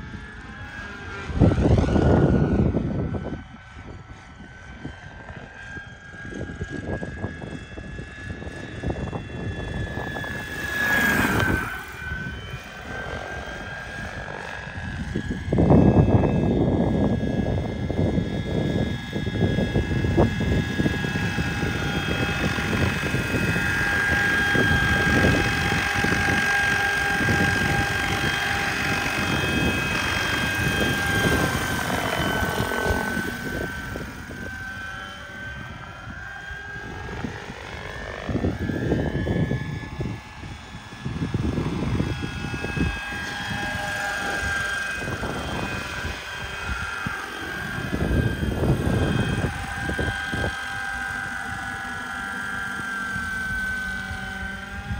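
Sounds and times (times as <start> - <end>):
model helicopter whine: 0.0 - 54.9
rushing fluttering rotor noise: 0.0 - 54.9.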